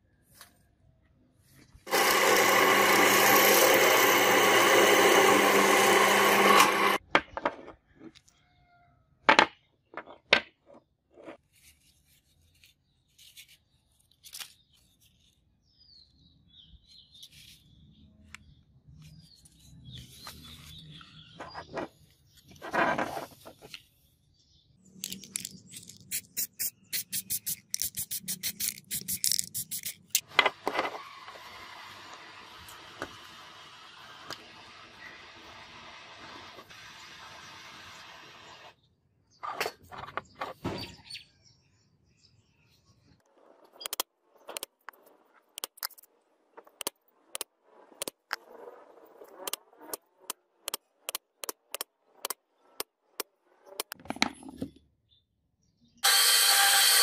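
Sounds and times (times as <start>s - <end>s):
drill boring into steel: 1.9s - 7.0s, 56.0s - 57.0s
short rubbing strokes: 25.7s - 30.2s
clicks and handling knocks: 43.6s - 48.4s, 49.4s - 54.8s.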